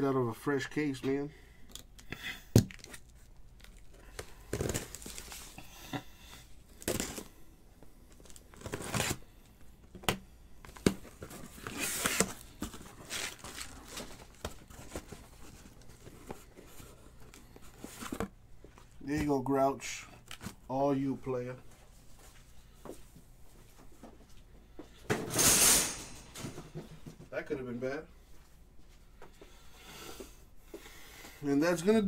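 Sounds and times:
cardboard packaging tearing: 2.6s - 5.6s, 6.8s - 7.3s, 8.2s - 9.3s, 10.8s - 16.1s.

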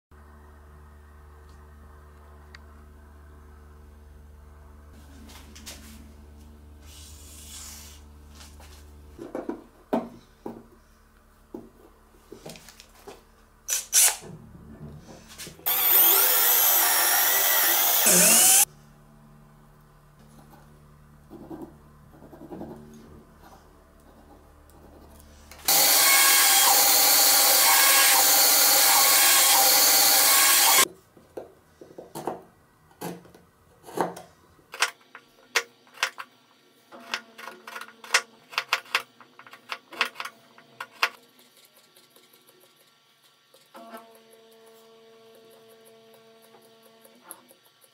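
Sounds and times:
small power tool running: 15.6s - 18.7s, 25.6s - 30.9s.

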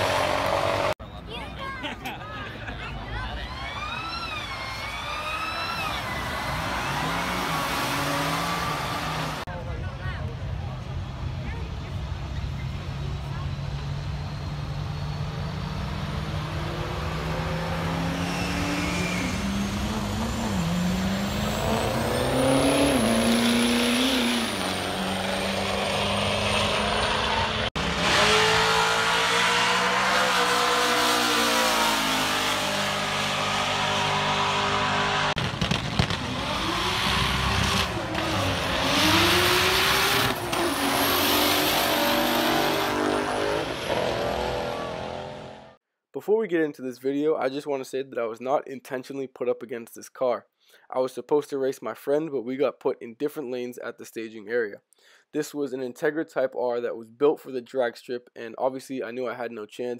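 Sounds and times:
drag racing engines accelerating: 0.0s - 1.3s, 2.5s - 45.8s.

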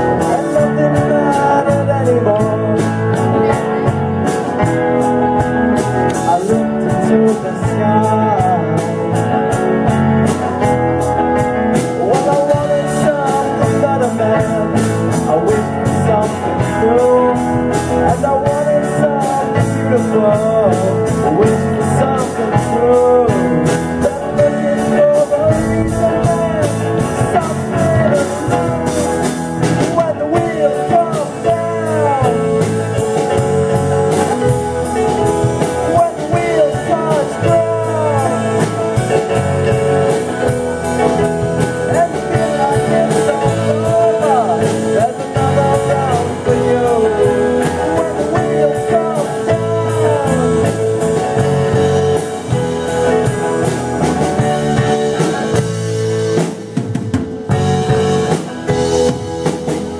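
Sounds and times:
rock band playing live: 0.0s - 59.9s
pitch-bending lead melody: 21.0s - 29.9s.

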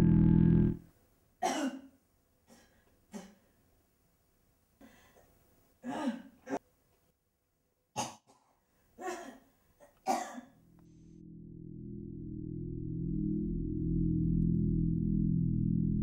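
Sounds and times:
low droning music note: 0.0s - 0.8s, 11.2s - 16.0s
man coughing: 1.4s - 1.9s, 8.0s - 10.6s.

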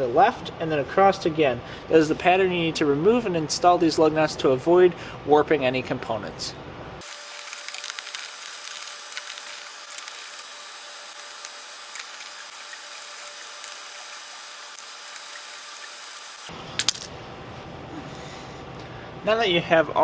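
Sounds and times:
steady hiss: 7.0s - 16.5s.

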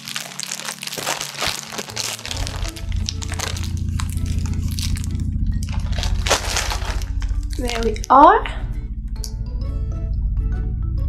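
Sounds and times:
plastic bags crinkling: 0.0s - 8.2s
plane passing overhead: 1.8s - 11.0s.

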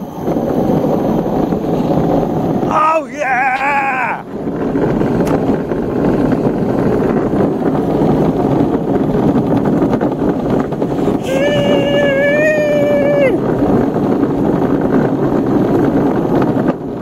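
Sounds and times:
wheels rumbling on asphalt: 0.0s - 17.0s
wind on microphone: 0.0s - 17.0s
high-pitched voice call: 11.2s - 13.4s.

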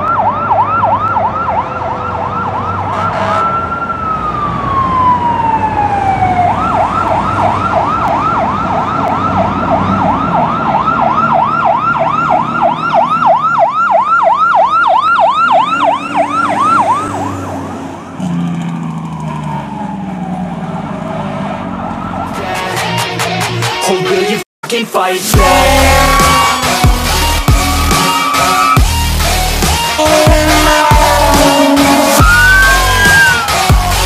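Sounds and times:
fire truck siren wailing and yelping: 0.0s - 23.5s, 25.4s - 34.0s
truck engine running: 25.4s - 34.0s.

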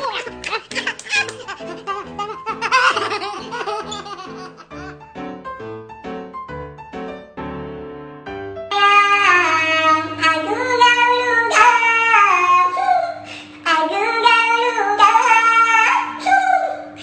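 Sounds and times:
high-pitched voice singing: 8.7s - 17.0s.

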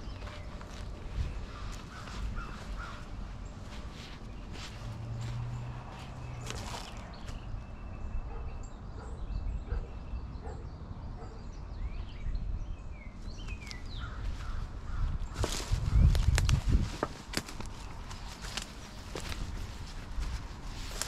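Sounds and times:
footsteps on dry leaves: 0.0s - 7.6s, 13.5s - 21.0s
birds chirping: 0.0s - 21.0s.

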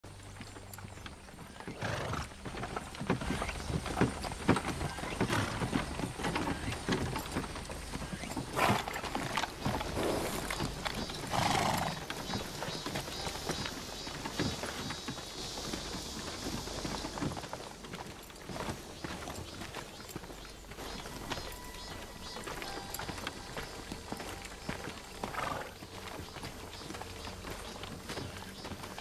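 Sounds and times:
horse hooves clopping: 0.0s - 29.0s
horse calls: 1.5s - 2.8s, 8.0s - 12.6s, 21.2s - 25.8s.

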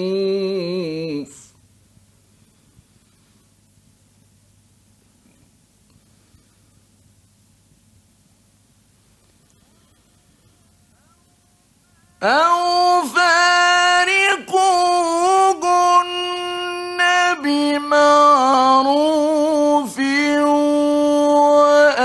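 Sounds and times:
man reciting melodically: 0.0s - 1.6s, 12.0s - 22.0s.

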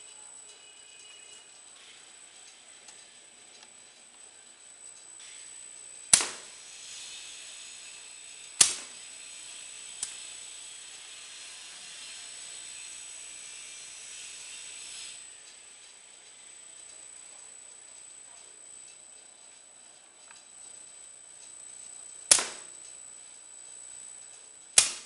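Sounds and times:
steady high hiss: 0.0s - 25.0s
machine clacking: 8.6s - 9.0s.

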